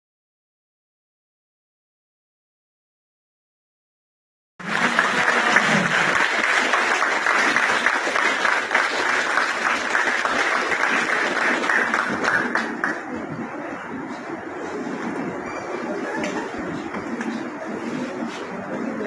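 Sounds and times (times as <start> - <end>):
audience applauding: 4.6 - 13.4.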